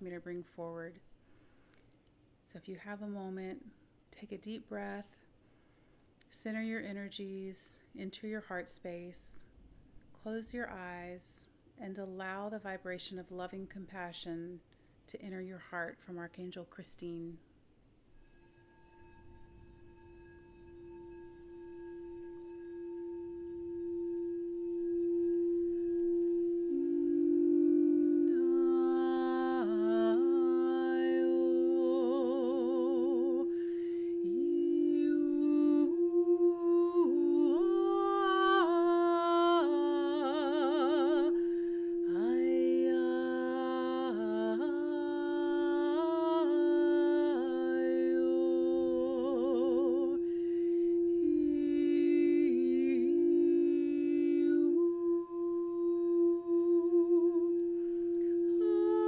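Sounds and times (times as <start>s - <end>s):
singing bowl ringing: 18.1s - 59.0s
woman singing wordless notes: 23.4s - 59.0s.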